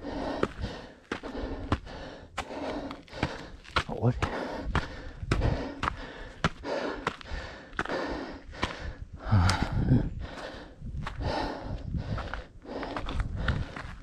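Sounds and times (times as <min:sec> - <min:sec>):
heavy breathing: 0:00.0 - 0:14.0
footfalls on a trail: 0:00.1 - 0:14.0.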